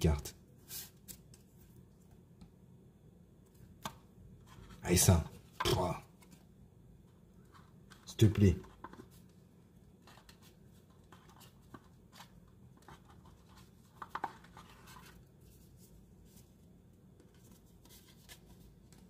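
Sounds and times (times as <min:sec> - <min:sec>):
trading cards rustling and tapping: 0:07.4 - 0:09.3, 0:10.0 - 0:15.2.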